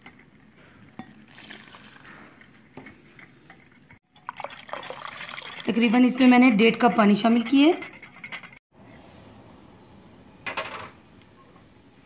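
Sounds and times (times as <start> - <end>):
whisk stirring: 0.0 - 8.6
water trickling into bowl: 1.3 - 2.1, 4.1 - 6.3
whisk tapping bowl: 2.4 - 8.6.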